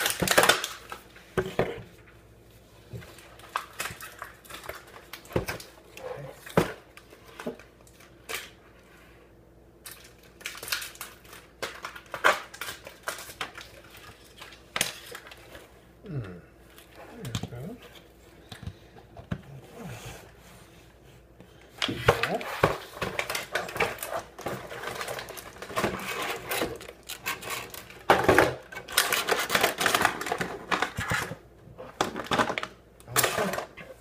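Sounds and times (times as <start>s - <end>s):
plastic packaging crackling: 0.0s - 1.1s, 3.1s - 5.8s, 9.8s - 15.6s, 22.1s - 34.0s.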